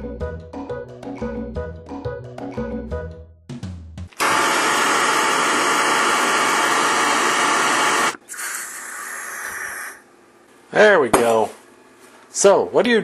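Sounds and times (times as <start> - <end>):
propane torch hissing: 4.2 - 10.0.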